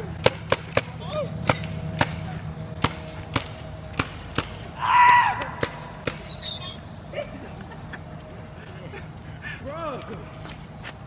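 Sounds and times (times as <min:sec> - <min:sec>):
paintball marker shots: 0:00.2 - 0:02.2, 0:02.8 - 0:04.6, 0:05.4 - 0:06.4.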